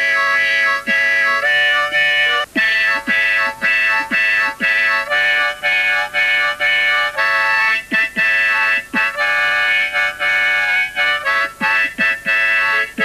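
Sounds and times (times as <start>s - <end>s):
harmonica playing chords: 0.0s - 13.0s.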